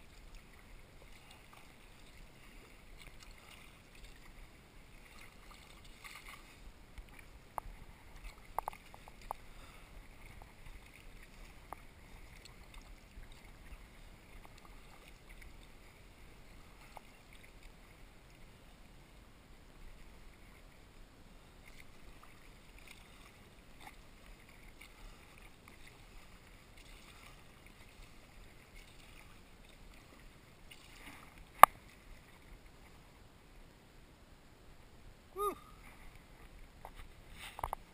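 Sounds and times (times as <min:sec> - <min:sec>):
paddle splashing water: 0:00.0 - 0:33.6
faint steady hiss: 0:00.0 - 0:37.9.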